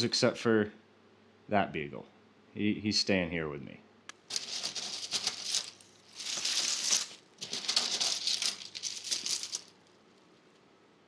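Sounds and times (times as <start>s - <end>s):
plastic keychains rattling: 4.3s - 9.8s.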